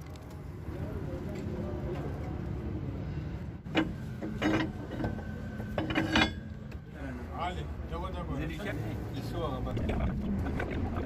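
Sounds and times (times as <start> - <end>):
metal tools clanking: 3.7 - 5.2, 5.8 - 6.4.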